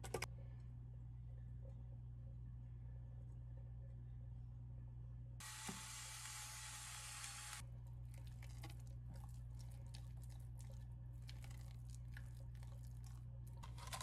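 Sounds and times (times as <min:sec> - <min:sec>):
electric pepper grinder whirring: 0:05.4 - 0:07.6.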